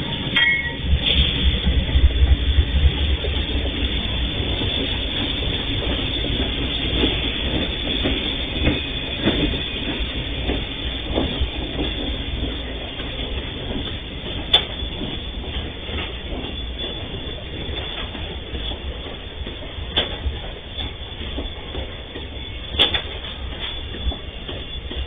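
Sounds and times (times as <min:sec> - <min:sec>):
freight train rumbling past: 0:00.0 - 0:25.0.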